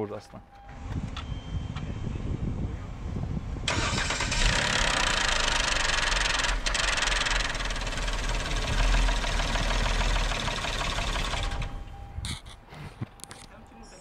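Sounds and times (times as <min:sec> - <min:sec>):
loud engine chain rattle: 0:03.7 - 0:11.8
car engine running: 0:04.5 - 0:11.8.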